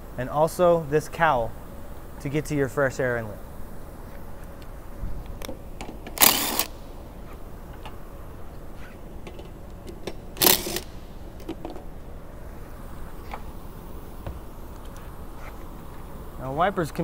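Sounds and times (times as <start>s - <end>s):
cordless impact wrench: 6.1s - 6.8s, 10.4s - 11.0s.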